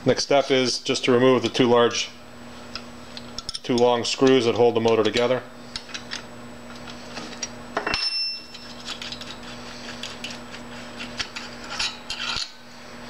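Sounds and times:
sharp ringing metal clink: 7.8s - 8.6s.

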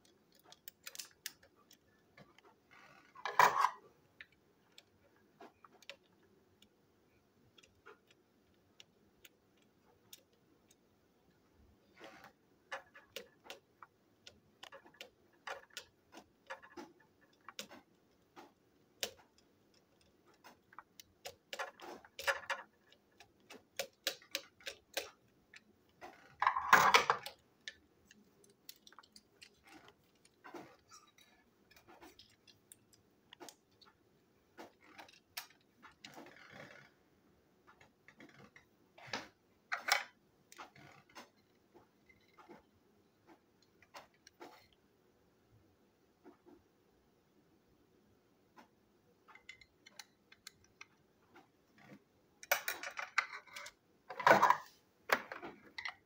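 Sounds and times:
plastic parts being handled: 0.0s - 36.9s, 49.2s - 56.0s.

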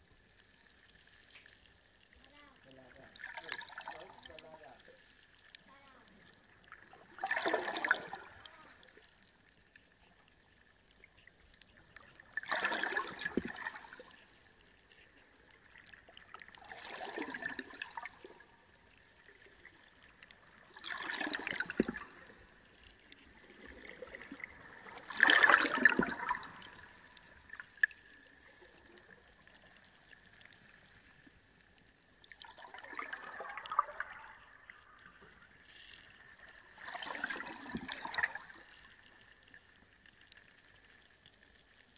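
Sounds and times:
aquarium water splashing: 2.2s - 9.0s, 12.2s - 14.2s, 15.8s - 29.1s, 32.2s - 35.0s, 36.4s - 38.8s.

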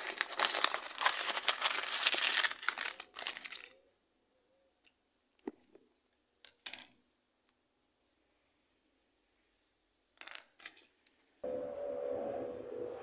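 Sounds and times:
paper wrapper crinkling: 0.0s - 3.8s.

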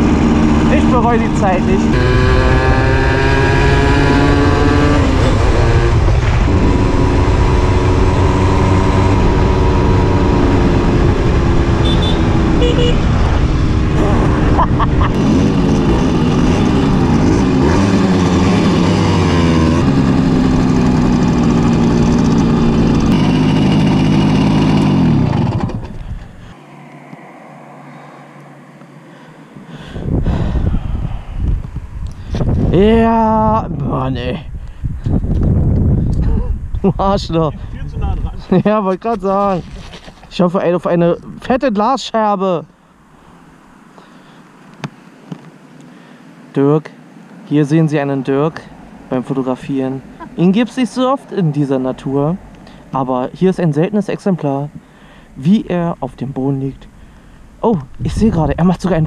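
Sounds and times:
moped engine revving: 0.0s - 26.8s.

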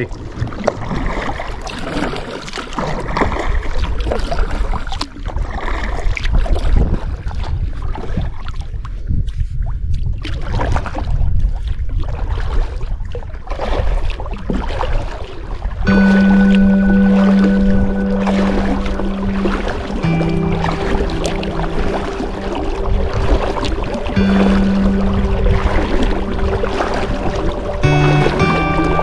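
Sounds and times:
water washing along hull: 0.0s - 29.0s
paddle strokes splashing: 0.2s - 8.7s, 9.3s - 29.0s
steady low rumble: 15.9s - 29.0s.

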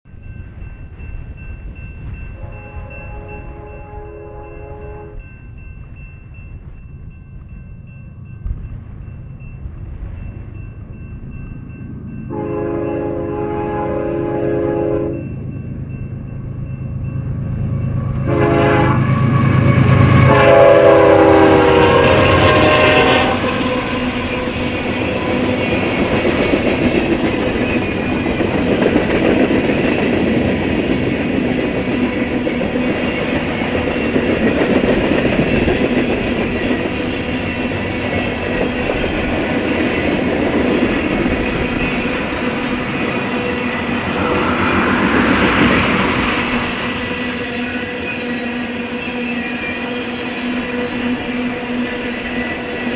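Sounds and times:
locomotive air horn: 2.4s - 5.2s, 12.3s - 15.2s, 18.2s - 24.6s, 44.2s - 44.8s
train wheels clickety-clack: 17.7s - 52.9s.

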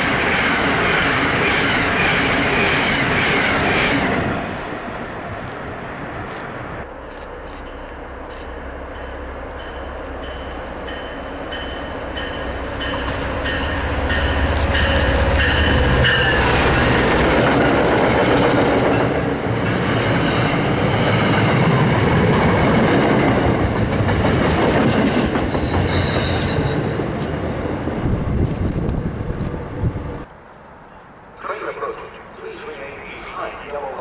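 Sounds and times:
train wheels clattering on rails: 7.6s - 27.4s.

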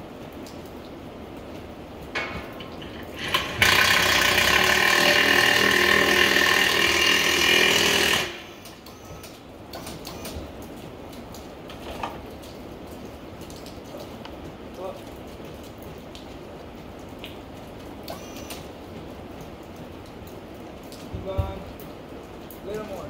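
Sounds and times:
power impact wrench running: 3.2s - 8.7s.

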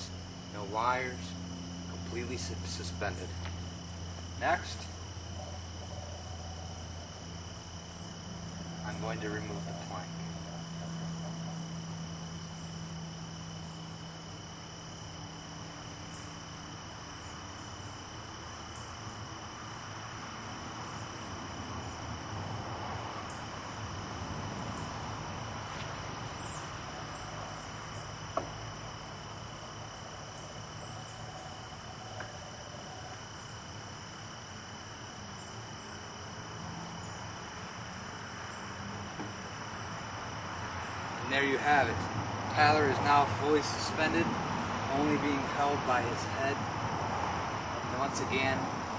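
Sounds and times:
low hum: 0.0s - 19.4s
insects chirring: 0.0s - 48.9s.

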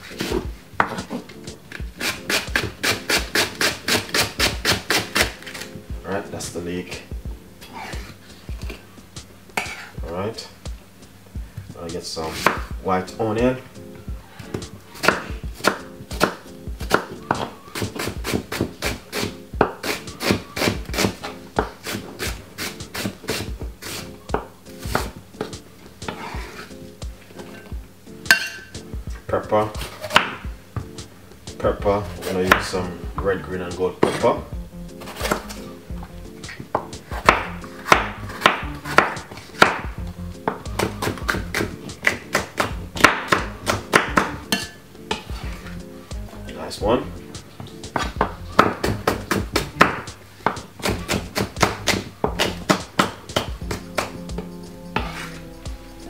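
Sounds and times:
background music: 0.0s - 56.0s
knife chopping onion on wooden board: 1.8s - 5.6s, 12.4s - 12.8s, 14.4s - 26.6s, 29.8s - 30.4s, 36.7s - 45.6s, 47.9s - 55.4s.

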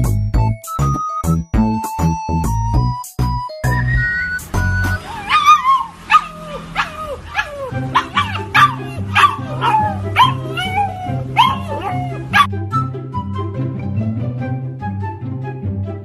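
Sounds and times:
background music: 0.0s - 5.4s, 6.8s - 16.0s
puppy yipping howls: 4.9s - 12.5s.

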